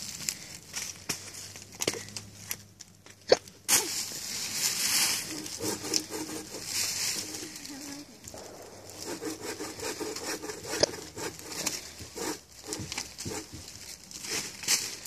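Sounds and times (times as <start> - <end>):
leaves and twigs crackling underfoot: 0.0 - 9.2, 11.4 - 15.0
shoes scraping against bark: 3.8 - 15.0
sharp crack: 8.2 - 11.9.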